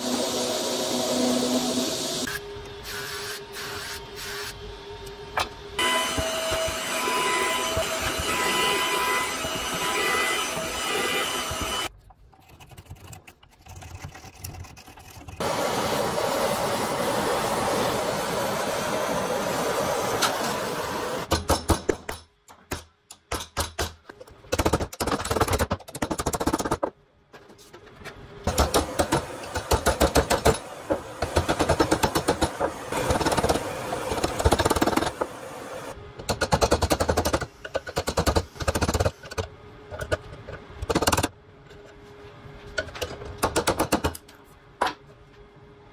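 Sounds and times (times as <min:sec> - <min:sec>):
saw cutting wood: 0:05.8 - 0:11.9.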